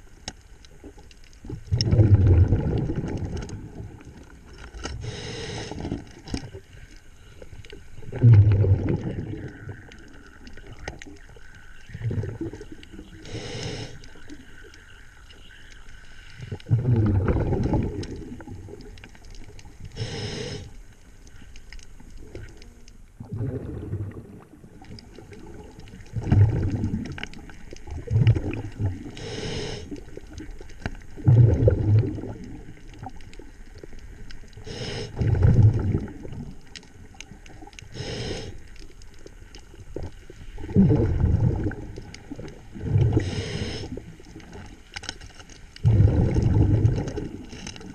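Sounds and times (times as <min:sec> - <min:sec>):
bubbling exhalations: 0:01.5 - 0:04.2, 0:08.0 - 0:11.0, 0:11.9 - 0:14.2, 0:16.4 - 0:18.9, 0:23.2 - 0:30.4, 0:31.1 - 0:33.1, 0:34.6 - 0:36.6, 0:40.6 - 0:44.7, 0:45.8 - 0:47.9
hissing regulator inhalations: 0:04.8 - 0:06.0, 0:13.2 - 0:14.3, 0:19.9 - 0:20.8, 0:29.1 - 0:30.0, 0:34.6 - 0:35.2, 0:37.9 - 0:38.7, 0:43.1 - 0:44.0.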